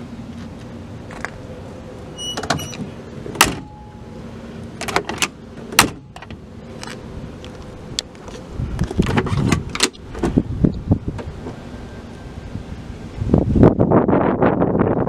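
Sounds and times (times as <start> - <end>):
car door latch metal clicks: 2.2 - 3.8, 4.8 - 7.0, 8.9 - 10.4
wind buffeting microphone: 6.7 - 15.0.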